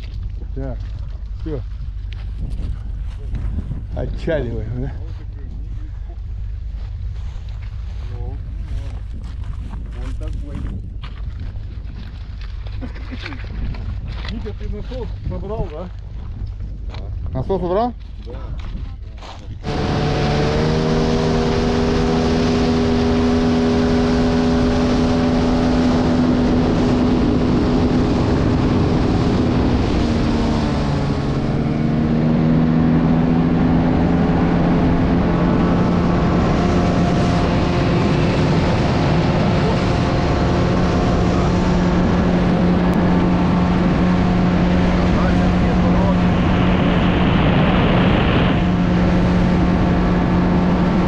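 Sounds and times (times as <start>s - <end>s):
outboard motor running: 0.0s - 51.0s
rushing water and wind: 19.6s - 51.0s.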